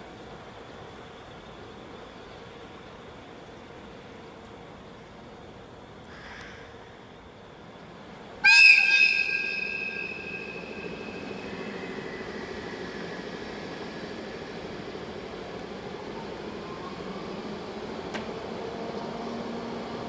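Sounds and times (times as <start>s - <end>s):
train air whistle blast: 8.4s - 11.5s.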